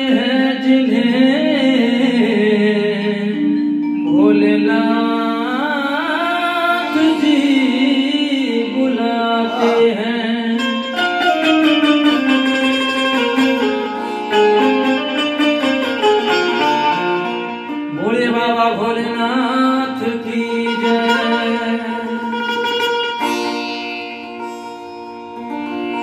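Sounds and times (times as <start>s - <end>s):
man singing: 0.0s - 11.5s, 17.9s - 22.7s
devotional keyboard music: 0.0s - 23.2s.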